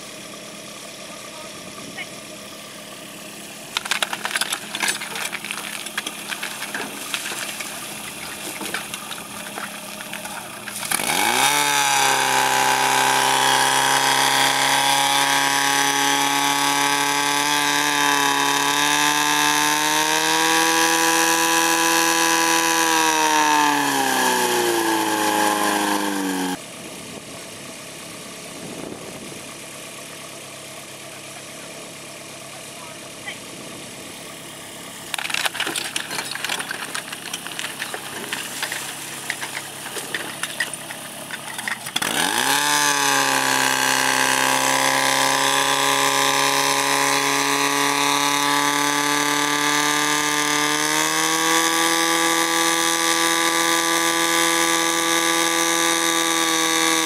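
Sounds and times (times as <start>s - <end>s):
pump engine revving high: 0.0s - 26.7s, 30.9s - 57.0s
equipment clattering: 3.8s - 11.1s, 35.1s - 42.2s.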